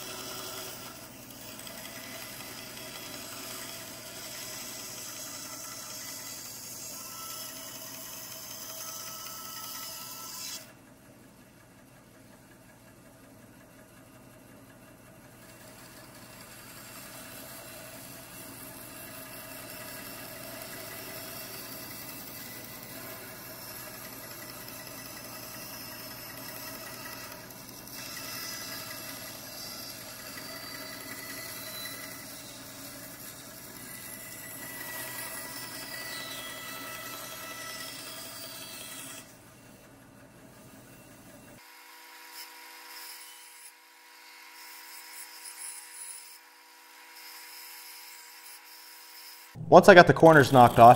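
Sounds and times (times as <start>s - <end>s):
bandsaw cutting wood: 0.0s - 10.7s, 15.4s - 39.4s, 49.1s - 50.9s.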